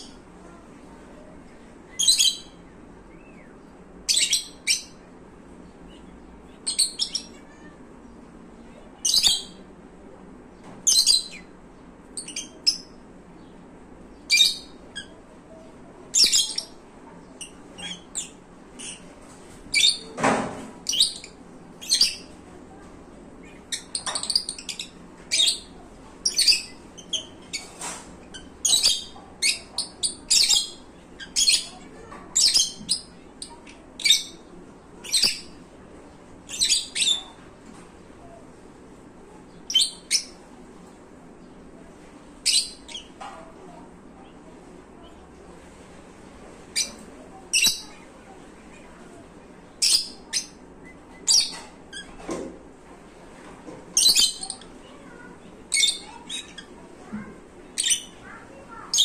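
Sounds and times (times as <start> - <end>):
lovebirds chirping: 0.0 - 9.7, 10.8 - 20.2, 20.8 - 35.8, 36.4 - 38.4, 42.4 - 44.4, 46.6 - 48.3, 48.9 - 52.2, 54.0 - 56.9, 57.7 - 59.0.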